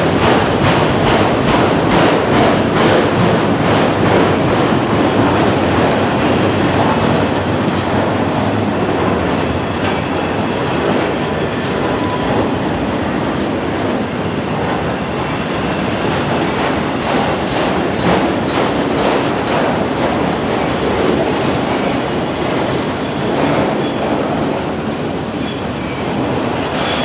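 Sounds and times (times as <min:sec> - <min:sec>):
steel wheels rumbling on rail: 0:00.0 - 0:27.0.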